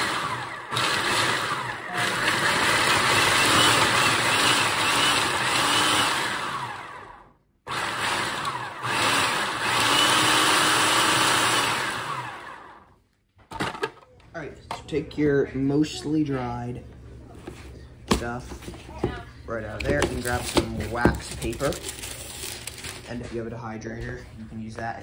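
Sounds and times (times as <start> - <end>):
food processor motor running: 0.0 - 12.9.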